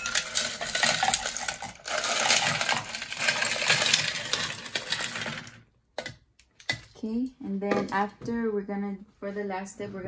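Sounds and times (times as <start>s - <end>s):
ice cubes clinking into glass pitcher: 0.0s - 5.6s.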